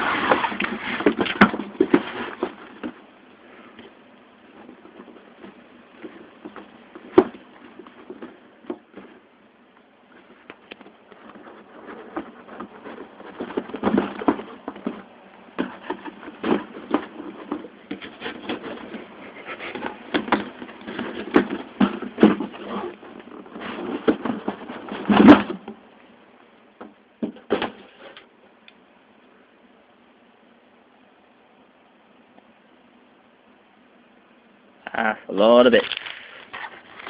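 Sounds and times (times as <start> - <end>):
cardboard box scrapes and knocks: 0.0 - 3.0, 11.2 - 25.7.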